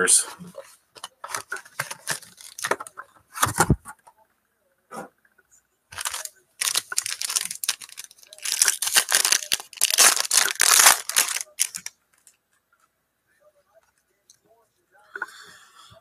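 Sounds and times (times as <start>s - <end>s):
foil wrapper tearing and crinkling: 1.2s - 2.8s, 5.9s - 11.9s.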